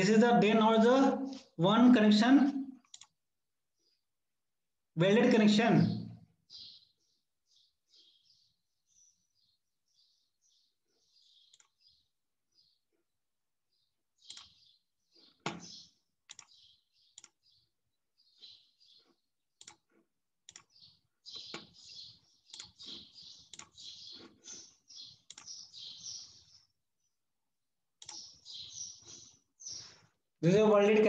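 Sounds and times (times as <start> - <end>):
computer keyboard typing: 2.8 - 3.2, 14.2 - 14.6, 16.3 - 17.4, 19.6 - 24.3, 25.0 - 25.7, 28.0 - 28.4.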